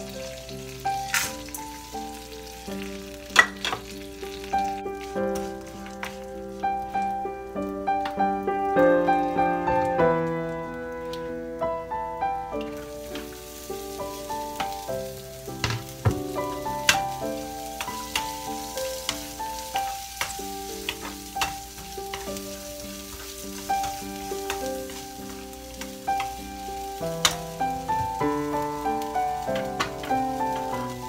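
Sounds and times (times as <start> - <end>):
onions sizzling in hot oil: 0.0 - 31.0
piano music: 0.0 - 31.0
spatula knocking and scraping pan: 15.6 - 25.1.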